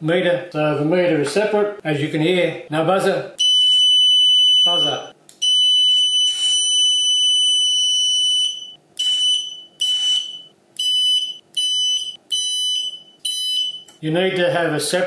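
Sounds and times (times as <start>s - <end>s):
high-pitched electronic buzzer beeping: 3.4s - 13.9s.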